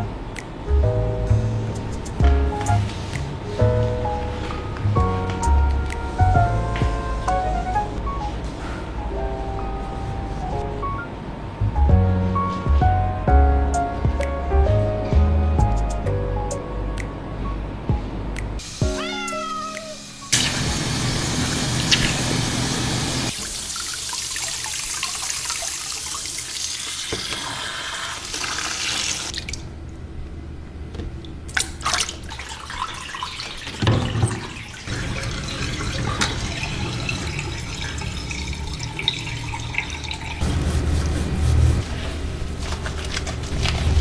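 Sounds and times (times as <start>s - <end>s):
shower sprayer water splashing: 18.6s - 29.5s, 31.8s - 41.8s.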